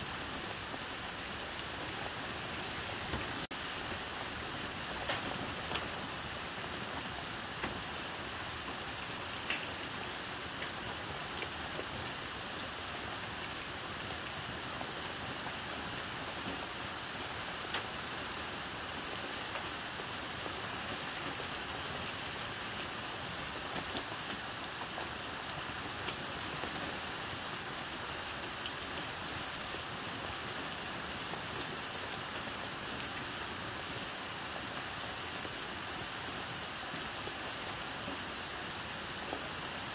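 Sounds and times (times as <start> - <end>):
heavy rain on roof: 0.0 - 39.9.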